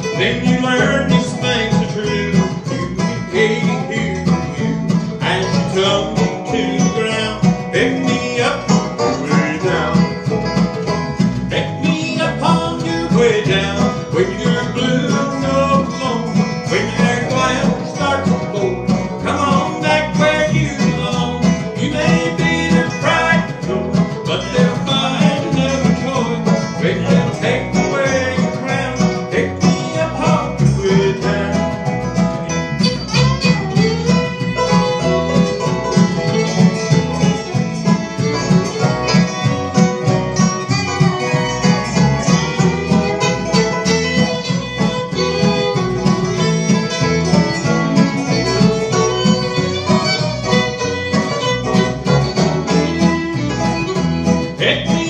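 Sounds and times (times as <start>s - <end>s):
bluegrass band playing: 0.0s - 55.0s.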